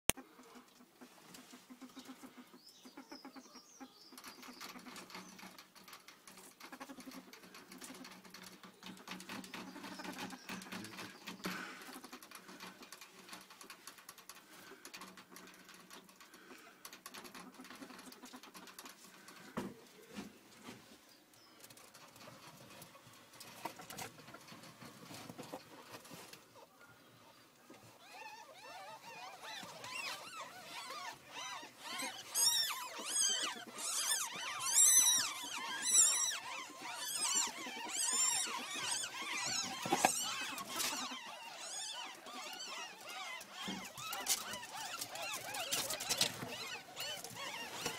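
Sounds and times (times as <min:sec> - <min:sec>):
soft low animal sounds: 0:00.2 - 0:47.9
ferret scrabbling and rustling: 0:28.8 - 0:47.9.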